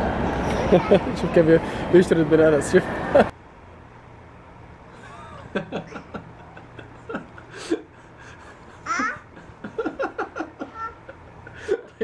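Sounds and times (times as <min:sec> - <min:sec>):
children laughing: 0:00.5 - 0:01.4, 0:04.9 - 0:12.0
toddler babbling: 0:08.8 - 0:09.3, 0:10.6 - 0:11.1
child squealing: 0:08.9 - 0:09.3.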